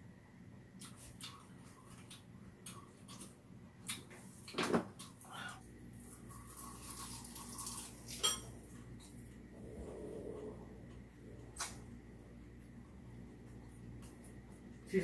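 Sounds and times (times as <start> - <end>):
utensils clinking against dishes: 8.1 - 8.6.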